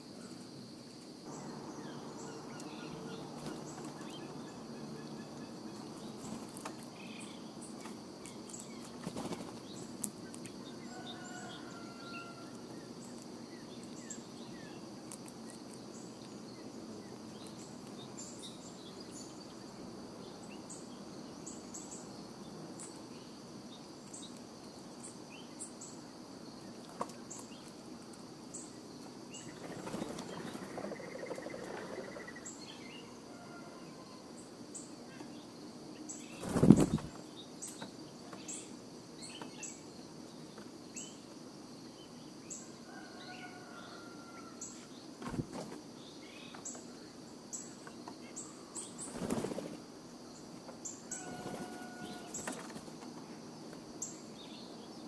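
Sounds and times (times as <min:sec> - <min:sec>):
steady high hum: 0:01.2 - 0:07.8
small birds chirping: 0:01.2 - 0:33.2, 0:34.4 - 0:42.8, 0:44.6 - 0:55.0.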